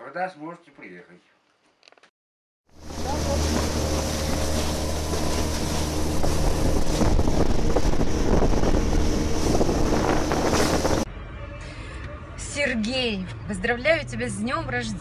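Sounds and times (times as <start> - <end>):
outboard motor humming: 2.7 - 11.1
water washing against metal hull: 2.7 - 11.1
wind buffeting microphone: 2.8 - 11.1.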